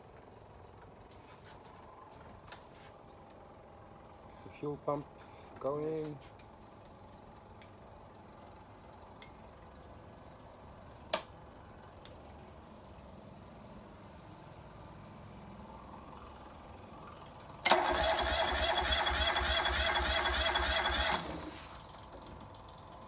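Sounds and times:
diesel engine running: 12.6 - 23.0
electric fuel pump running: 17.6 - 22.6.

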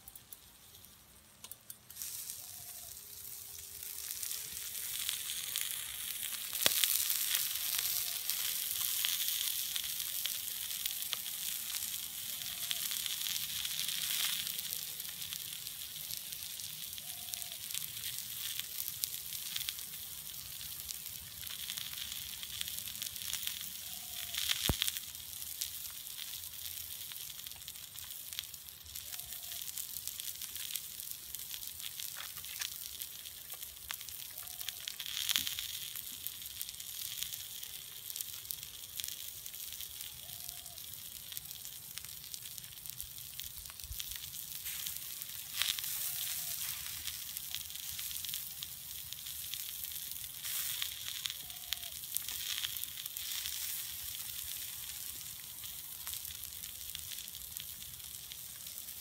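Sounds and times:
embers crackling and popping: 0.0 - 59.0
vegetables sizzling on hot metal: 0.0 - 59.0.

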